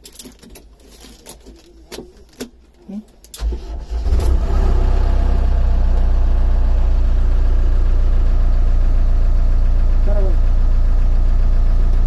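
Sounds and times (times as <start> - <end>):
diesel engine starting and idling: 3.4 - 12.0.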